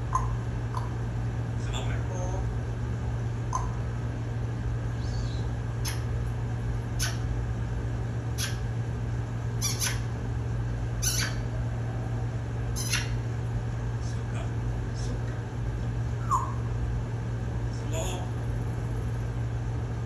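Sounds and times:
parrot clicking: 0.1 - 1.0.

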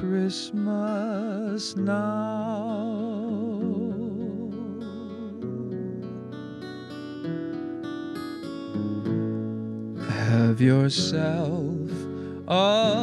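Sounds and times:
man singing with vibrato: 0.0 - 5.8, 10.0 - 13.0
acoustic guitar picking: 0.0 - 13.0.

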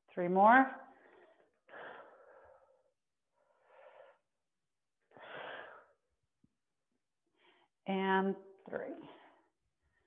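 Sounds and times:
woman breathing hard: 1.0 - 4.4, 5.1 - 6.1.

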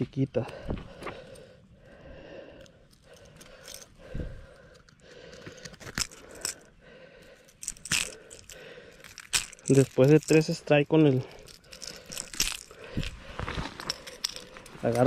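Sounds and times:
pliers clicking on metal hooks: 7.5 - 13.1.

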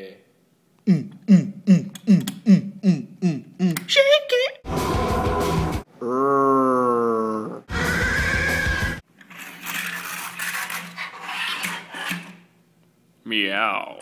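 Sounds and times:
horse-like whinny: 6.0 - 9.0.

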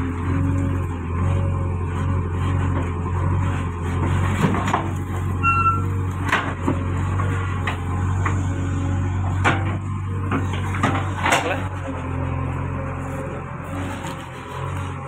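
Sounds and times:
diesel engine running under load: 0.0 - 15.0
short high squeak: 5.3 - 6.0.

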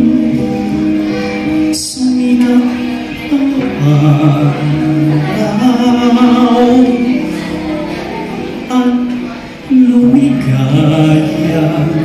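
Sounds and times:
man singing into microphone: 0.0 - 12.0
musical accompaniment: 0.0 - 12.0.

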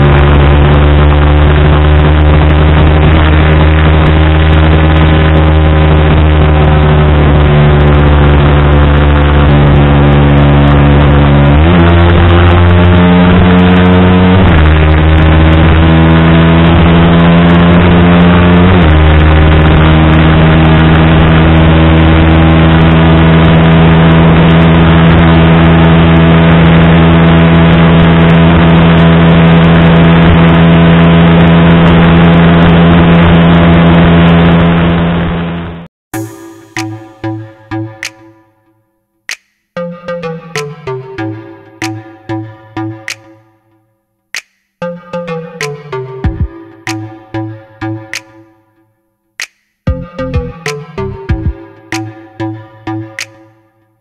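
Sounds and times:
motorcycle engine at high revs: 0.0 - 35.8.

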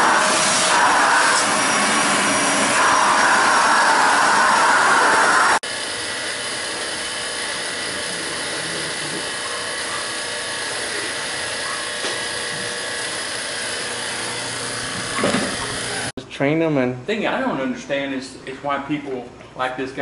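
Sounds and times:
vacuum pump running: 0.0 - 16.1.

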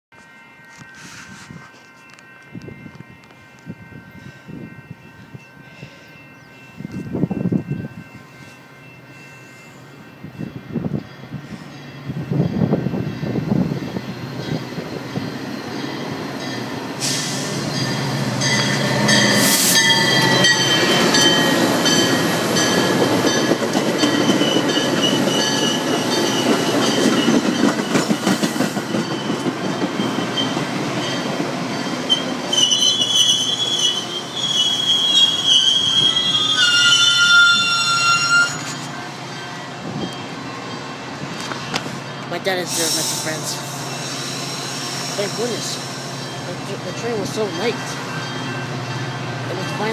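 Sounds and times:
train wheels rumbling: 0.8 - 49.9
high steady wheel squeal: 32.1 - 39.0.

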